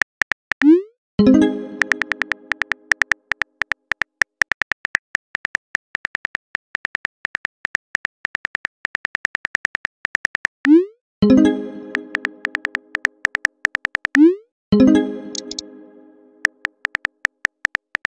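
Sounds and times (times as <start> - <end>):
phone keyboard clicks: 0.0 - 0.7, 1.8 - 10.6, 11.9 - 14.2, 15.3 - 15.6, 16.4 - 18.0
message sent chime: 1.2 - 3.0, 11.2 - 13.1, 14.8 - 16.6.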